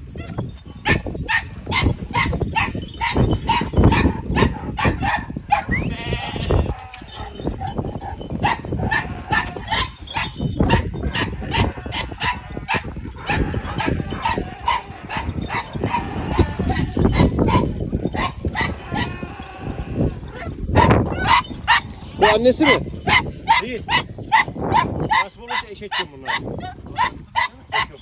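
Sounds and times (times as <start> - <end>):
large dog barking rapidly: 0.8 - 5.7, 6.7 - 19.1, 20.7 - 28.0.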